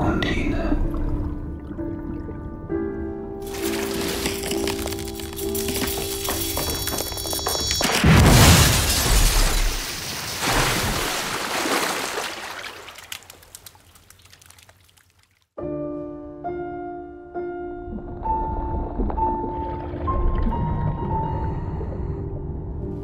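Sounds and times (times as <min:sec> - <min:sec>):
glass bursting with a crash: 0:03.4 - 0:11.5
water pouring: 0:03.4 - 0:15.4.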